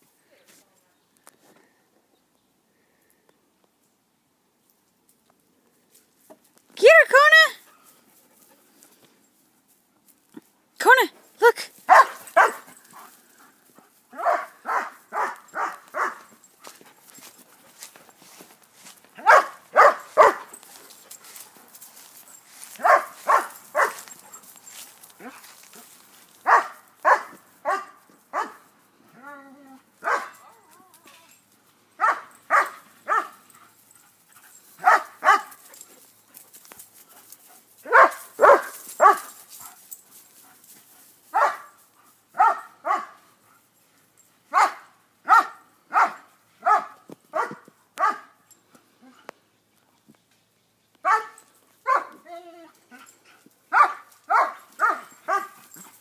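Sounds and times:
dog barking: 11.9s - 12.7s, 14.2s - 16.3s, 19.2s - 20.5s, 22.8s - 24.1s, 26.4s - 28.6s, 30.0s - 30.4s, 32.0s - 33.4s, 34.8s - 35.6s, 37.8s - 39.4s, 41.3s - 41.8s, 42.4s - 43.2s, 44.5s - 48.4s, 51.0s - 52.2s, 53.7s - 55.6s.

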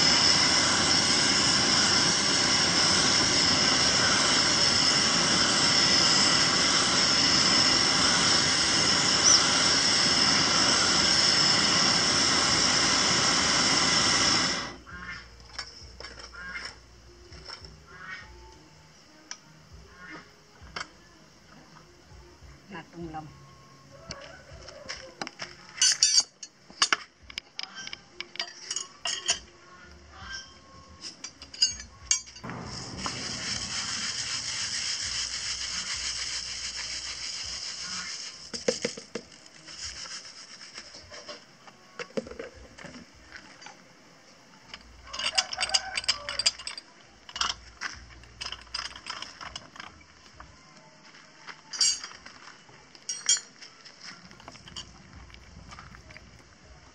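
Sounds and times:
metal lid clinks and rattles: 25.8s - 27.0s, 27.6s - 29.5s, 31.1s - 32.4s, 45.0s - 47.7s, 48.3s - 50.0s, 51.7s - 52.2s, 53.0s - 53.6s, 54.4s - 55.0s
grains poured into drum: 32.5s - 41.4s.

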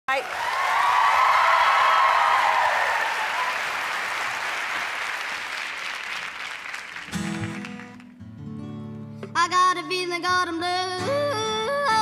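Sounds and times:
audience applauding: 0.1s - 8.2s
acoustic guitar strumming: 7.0s - 12.0s.

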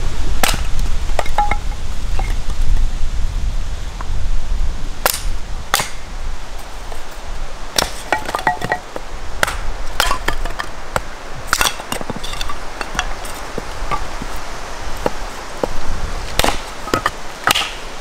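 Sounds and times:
hatchet splitting wood: 0.4s - 1.6s, 5.0s - 6.0s, 7.8s - 14.3s, 15.0s - 17.9s
ringing clinks of split wood: 0.4s - 2.4s, 7.8s - 10.7s, 11.5s - 14.2s, 16.4s - 17.8s.

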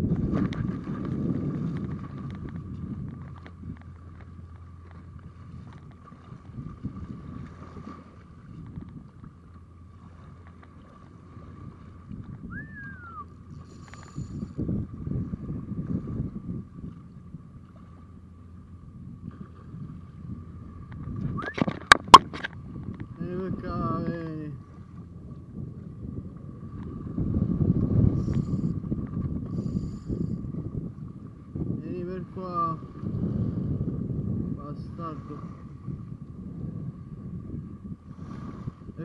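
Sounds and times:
water moving against boat: 0.0s - 39.0s
wind buffeting microphone: 0.0s - 39.0s
faint high hum: 2.8s - 38.0s
short rising and falling chirp: 12.5s - 13.3s.

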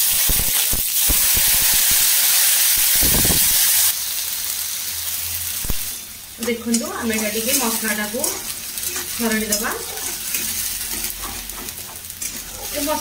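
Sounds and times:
paste sizzling in hot oil: 0.0s - 13.0s.

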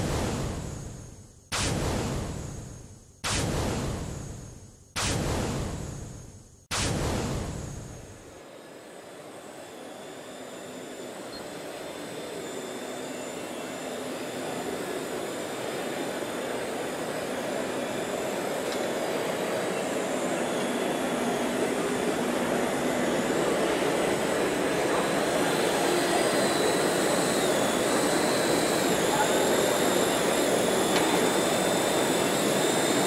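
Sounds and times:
electric motor whine: 8.4s - 33.0s.

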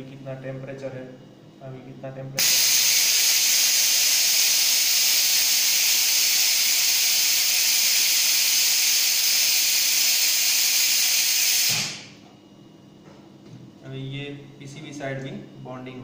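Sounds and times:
cooling air hissing: 2.4s - 12.2s.

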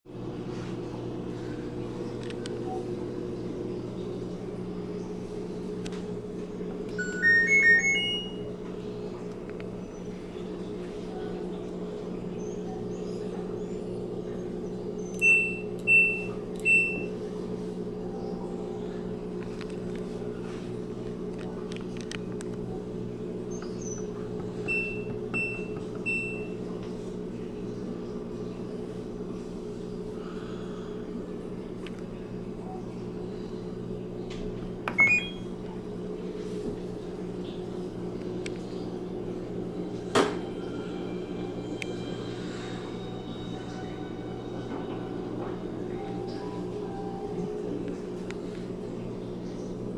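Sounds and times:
steady low hum: 0.1s - 49.9s
short electronic beeps: 7.0s - 8.4s, 34.9s - 35.4s
button click: 34.9s - 35.4s.

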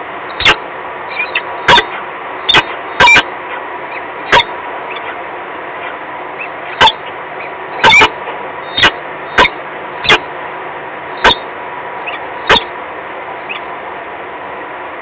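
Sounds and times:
falcon harsh calls: 0.4s - 5.2s, 5.8s - 10.3s, 11.2s - 12.7s.

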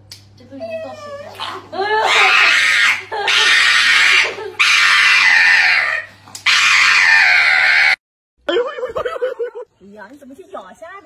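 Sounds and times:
dog screaming: 1.1s - 8.0s.

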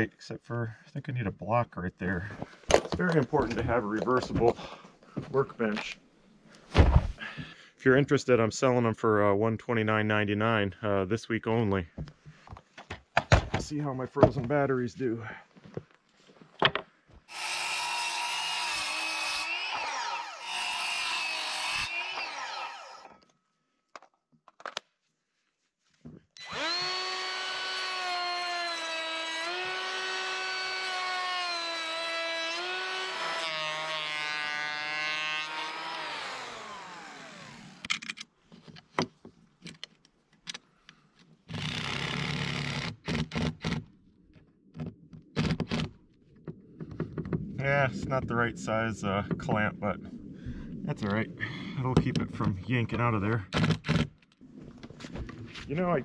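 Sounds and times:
circular saw cutting board: 17.3s - 23.2s, 26.4s - 37.9s
cordless drill driving screw: 17.3s - 23.2s, 26.4s - 38.0s, 41.5s - 43.8s.

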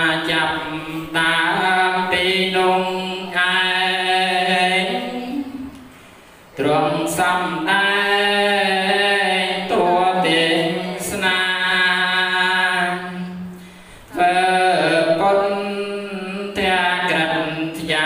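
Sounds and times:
man chanting through a microphone: 0.0s - 5.7s, 6.5s - 18.0s.

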